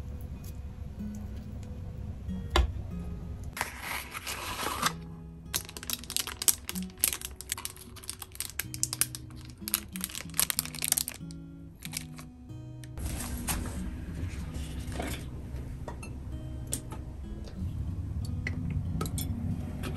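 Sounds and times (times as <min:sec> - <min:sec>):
soft background music: 0:00.0 - 0:19.9
paper wrapper rustle: 0:03.6 - 0:12.3, 0:13.0 - 0:15.3.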